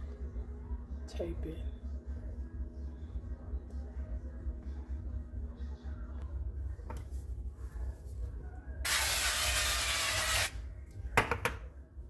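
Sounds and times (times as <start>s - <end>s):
aerosol spray hissing: 8.9s - 10.5s.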